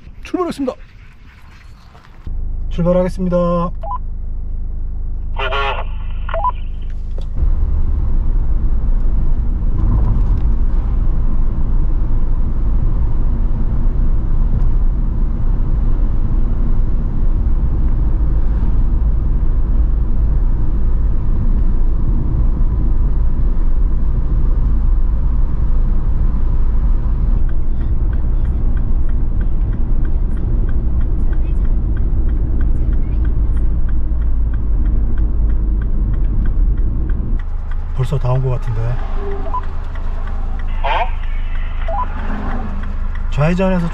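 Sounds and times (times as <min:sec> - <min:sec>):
road and wind noise: 0:00.0 - 0:43.9
brief beeping tone: 0:06.3 - 0:06.8, 0:39.2 - 0:39.7, 0:41.8 - 0:42.2.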